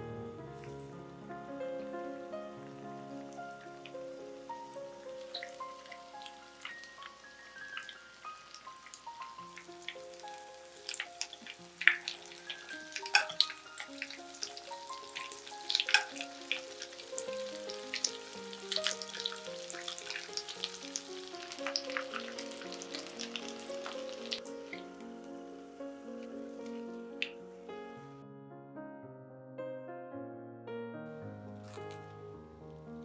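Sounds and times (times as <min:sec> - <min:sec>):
patties sizzling in oil: 0:02.2 - 0:27.4
oil crackling and popping: 0:03.0 - 0:25.4, 0:31.6 - 0:32.2.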